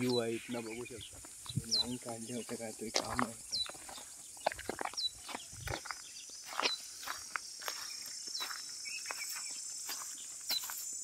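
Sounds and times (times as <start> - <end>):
footsteps crunching on dry ground: 0.0 - 11.0
high buzz of insects: 0.0 - 11.0.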